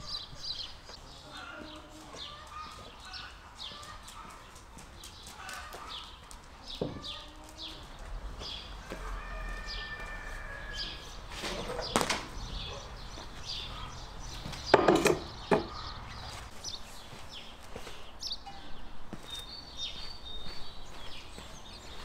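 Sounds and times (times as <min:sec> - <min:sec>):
small birds chirping: 0:00.0 - 0:22.0
metal stand clattering on board: 0:14.7 - 0:15.7
wooden knocks: 0:14.7 - 0:15.8.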